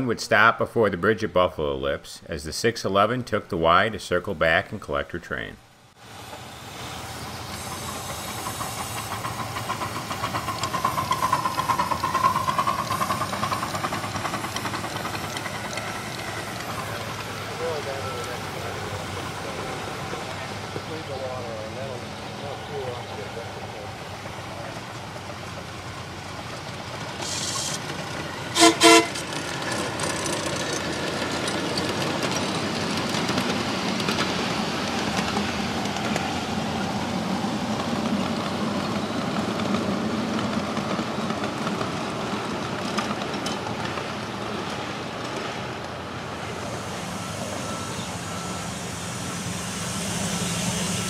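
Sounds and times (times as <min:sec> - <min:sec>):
small trains running on track: 0:05.7 - 0:51.0
miniature locomotive toots: 0:07.5 - 0:19.0, 0:27.1 - 0:34.3.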